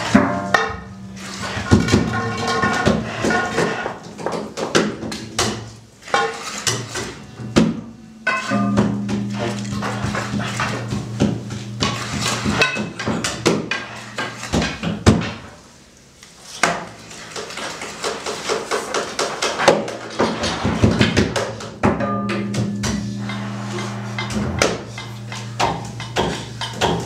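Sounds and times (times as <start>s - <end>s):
percussion clattering on metal junk: 0.0s - 15.6s, 16.6s - 27.0s
low held tone: 0.2s - 3.0s, 8.0s - 14.6s, 22.0s - 27.0s.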